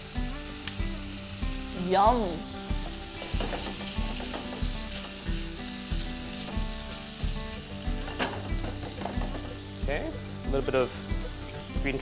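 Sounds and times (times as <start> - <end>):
food sizzling in a wok: 0.0 - 12.0
spatula stirring in a pan: 2.8 - 9.6.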